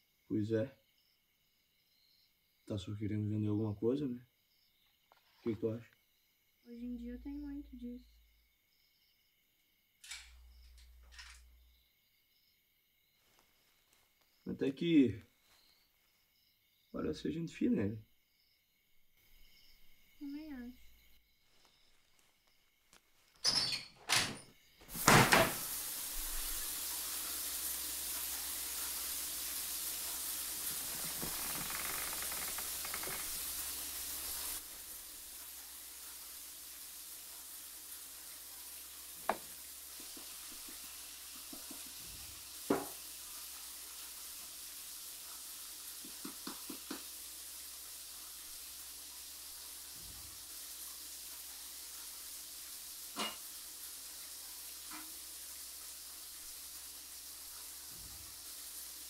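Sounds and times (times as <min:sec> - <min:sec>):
steady hiss: 0:00.0 - 0:59.0
wooden shutters knocking open: 0:23.8 - 0:25.6.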